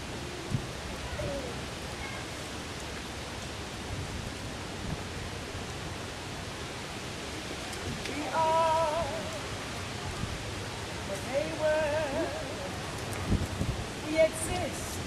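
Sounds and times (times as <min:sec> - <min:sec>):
outdoor background hiss: 0:00.0 - 0:15.0
woman singing long note: 0:08.1 - 0:09.6, 0:11.1 - 0:12.9, 0:14.0 - 0:15.0.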